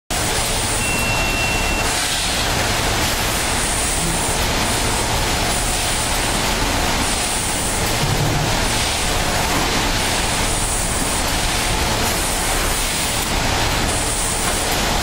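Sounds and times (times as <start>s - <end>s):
packaging machines running: 0.1s - 15.0s
high beep: 0.8s - 2.0s.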